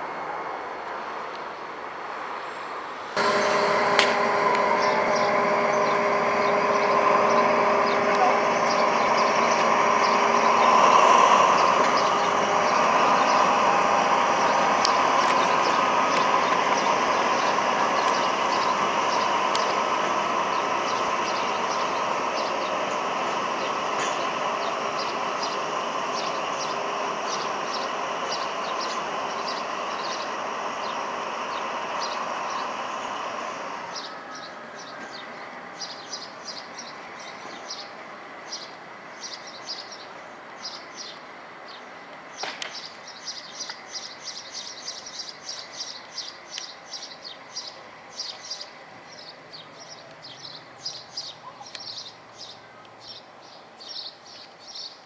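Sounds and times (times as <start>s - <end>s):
diesel train running: 0.0s - 55.0s
small birds chirping: 33.9s - 55.0s.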